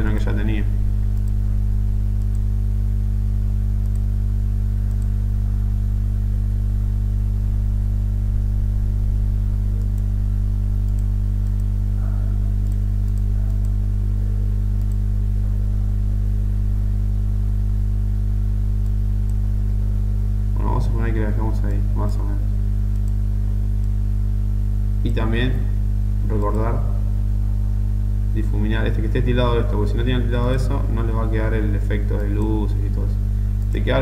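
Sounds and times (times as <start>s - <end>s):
low mains buzz: 0.0s - 34.0s
faint clicks: 2.2s - 2.5s, 4.8s - 5.1s, 10.8s - 11.7s, 12.6s - 13.8s, 22.9s - 23.2s.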